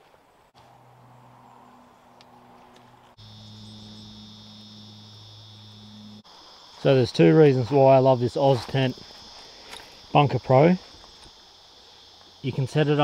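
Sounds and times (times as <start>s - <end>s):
low steady hum: 3.0s - 6.2s
cicada chorus buzzing: 3.1s - 13.0s.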